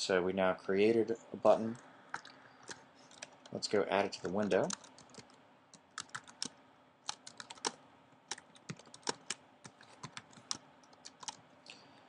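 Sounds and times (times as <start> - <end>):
computer keyboard typing: 1.7 - 3.5, 4.2 - 11.4.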